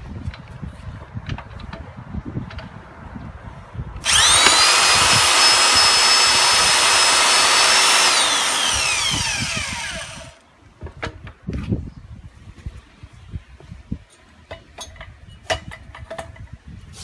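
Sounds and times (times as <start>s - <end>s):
electric facing tool whining: 4.0s - 10.4s.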